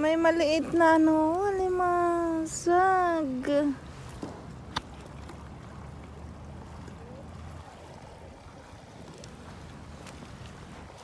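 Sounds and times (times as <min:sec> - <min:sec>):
water noise: 0:00.0 - 0:11.0
wind: 0:00.0 - 0:11.0.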